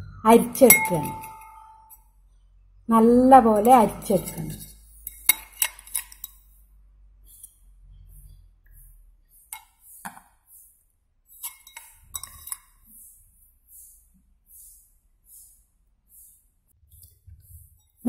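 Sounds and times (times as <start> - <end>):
metal strainer clinking on glass: 0.6 - 1.6, 3.6 - 6.4, 11.4 - 12.8.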